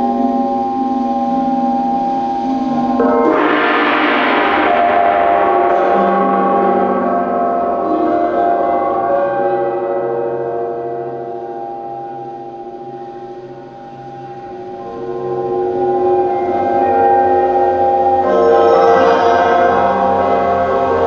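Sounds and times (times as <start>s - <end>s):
large gong ringing: 0.0s - 21.0s
singing bowls ringing: 0.0s - 21.0s.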